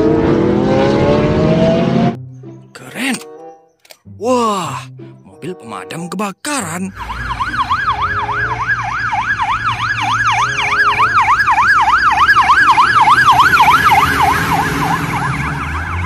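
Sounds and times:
fire engine siren yelping: 6.9s - 16.0s
truck engine running: 6.9s - 16.0s.

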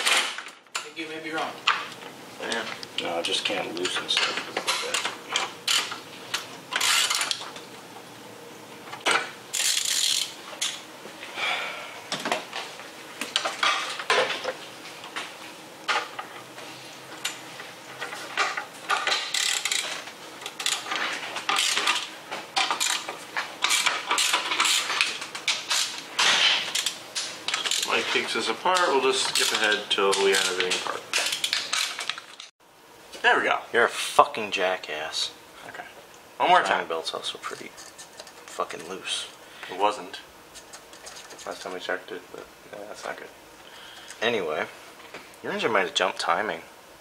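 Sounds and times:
hand ratchet clicking: 9.6s - 10.8s, 19.0s - 19.9s, 20.5s - 20.9s, 21.5s - 22.0s, 26.7s - 28.0s.

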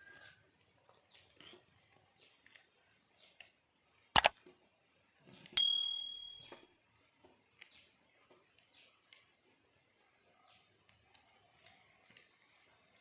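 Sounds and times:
metal platter ringing: 5.6s - 6.6s.

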